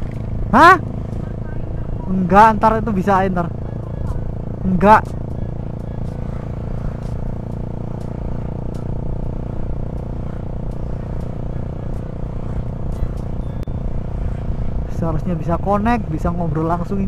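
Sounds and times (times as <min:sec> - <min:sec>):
motorcycle engine cruising: 0:00.0 - 0:17.0
wind rumble on microphone: 0:03.7 - 0:17.0.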